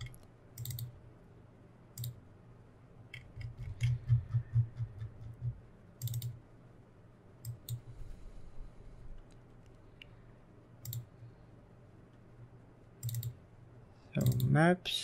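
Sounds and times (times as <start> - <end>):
computer mouse clicking: 0.0 - 0.9, 2.0 - 2.2, 3.1 - 6.4, 7.4 - 7.9, 10.8 - 11.1, 13.0 - 13.4, 14.2 - 14.5.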